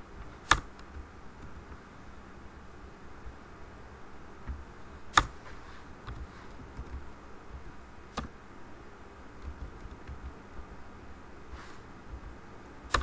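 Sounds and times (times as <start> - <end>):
low steady hum: 0.0 - 13.0
computer keyboard keystrokes: 0.5 - 1.0, 6.1 - 7.0, 9.4 - 10.4.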